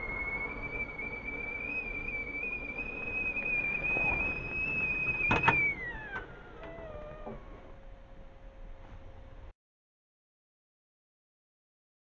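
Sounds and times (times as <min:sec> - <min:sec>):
kettle whistling: 0:00.0 - 0:07.9.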